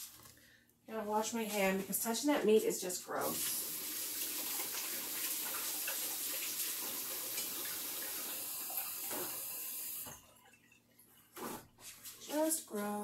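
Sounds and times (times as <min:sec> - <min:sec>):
sink tap running: 0:03.3 - 0:10.2.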